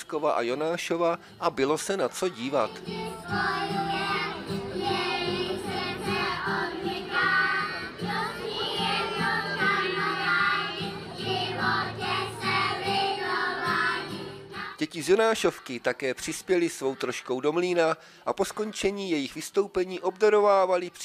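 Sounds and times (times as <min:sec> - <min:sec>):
acoustic guitar: 0:00.8 - 0:15.6
children singing: 0:02.3 - 0:17.8.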